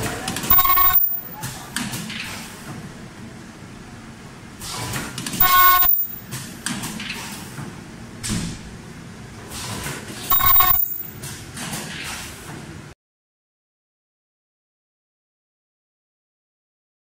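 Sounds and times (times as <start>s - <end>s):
machine buzzing tone: 0.5s - 1.4s, 5.4s - 6.3s, 10.3s - 11.2s.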